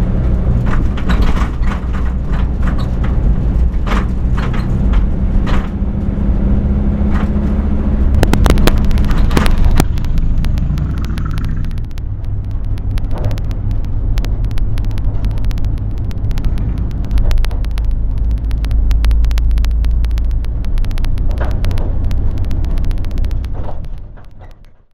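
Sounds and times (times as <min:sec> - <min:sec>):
car engine and road rumble: 0:00.0 - 0:24.9
sharp clicks: 0:07.0 - 0:24.9.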